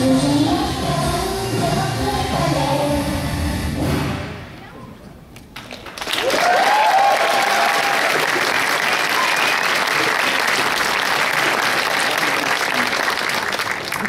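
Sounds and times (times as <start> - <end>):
audience applauding: 5.6 - 14.0
audience cheering: 6.1 - 14.0.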